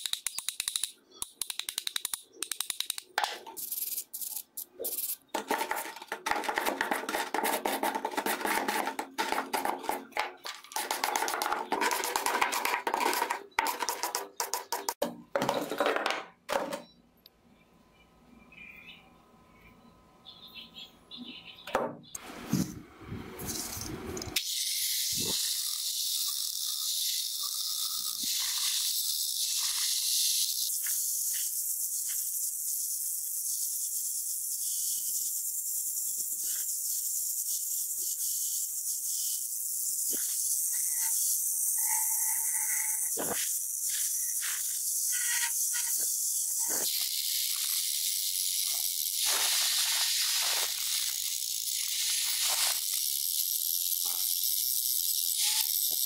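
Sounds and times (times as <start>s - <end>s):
angle grinder grinding metal: 37.4s - 56.0s.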